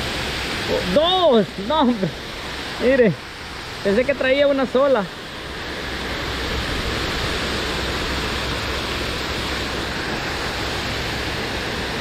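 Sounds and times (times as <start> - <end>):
heavy rain: 0.0 - 12.0.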